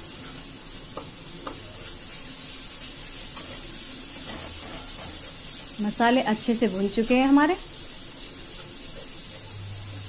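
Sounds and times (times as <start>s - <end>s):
spices sizzling in oil: 0.0s - 10.0s
spatula scraping pan: 3.2s - 5.8s.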